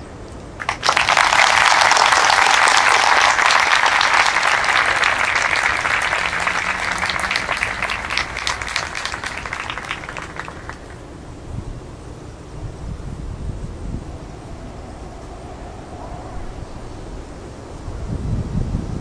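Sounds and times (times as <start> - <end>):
audience applauding: 0.6 - 11.1.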